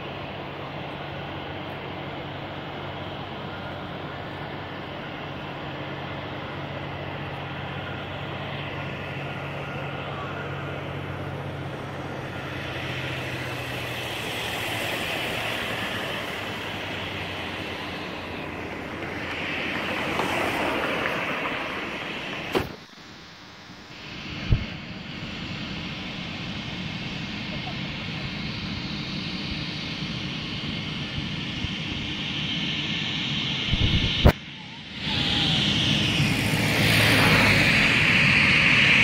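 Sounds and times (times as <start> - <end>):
distant jet engines rumbling: 0.0 - 39.0
van driving past: 2.2 - 22.8.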